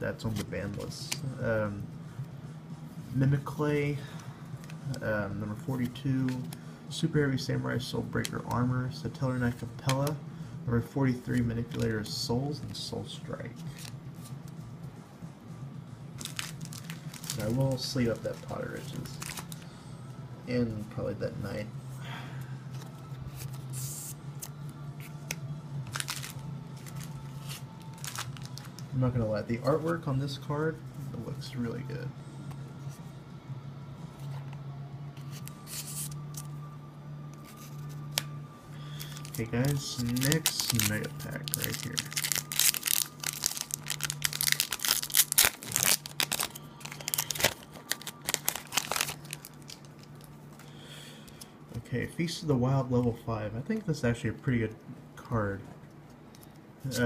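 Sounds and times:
steady low hum: 0.0s - 57.0s
cards sliding into plastic sleeves: 0.2s - 1.3s, 4.2s - 6.6s, 22.7s - 28.9s, 34.1s - 36.6s, 37.3s - 51.5s
foil wrapper crinkling and tearing: 16.2s - 19.6s, 25.9s - 28.8s, 38.9s - 50.3s.

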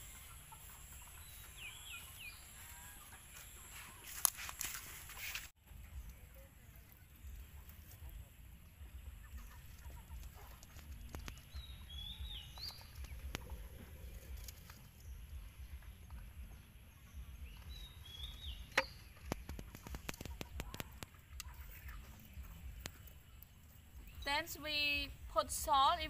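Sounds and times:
small bird chirping: 0.0s - 4.4s, 5.0s - 25.4s
low steady rumble: 5.6s - 19.5s.

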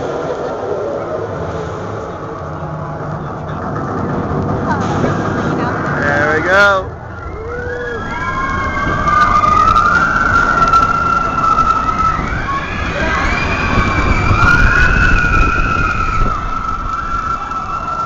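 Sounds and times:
roller coaster train rumbling: 0.0s - 18.0s
riders screaming: 6.1s - 18.0s.

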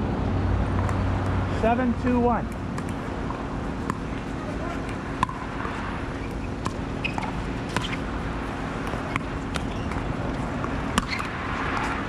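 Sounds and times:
outdoor background hum: 0.0s - 12.0s.

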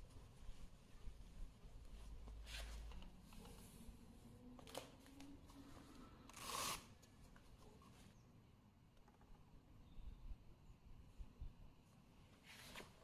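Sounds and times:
faint handling noises: 0.0s - 9.5s.

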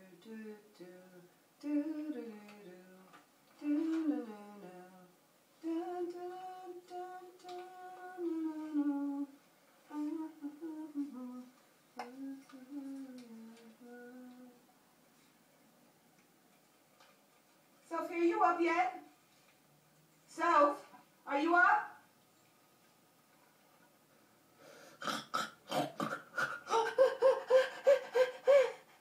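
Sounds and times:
woman humming through tv speaker: 9.9s - 14.6s.

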